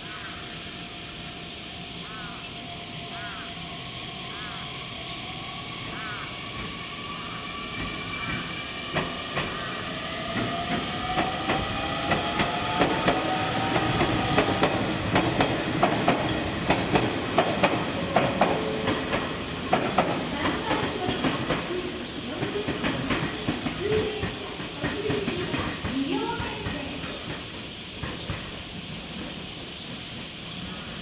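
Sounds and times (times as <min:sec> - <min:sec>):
electric train pulling away: 0:00.0 - 0:31.0
wheels clacking over rail joints: 0:07.8 - 0:30.8.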